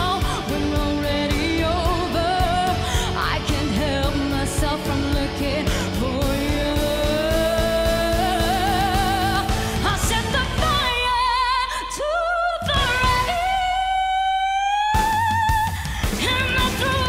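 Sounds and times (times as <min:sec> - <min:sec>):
live pop-rock band: 0:00.0 - 0:17.0
woman singing with vibrato: 0:00.0 - 0:17.0.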